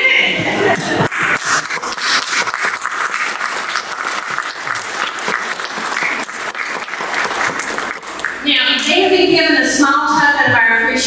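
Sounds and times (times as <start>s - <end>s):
crowd applauding: 0.6s - 8.5s.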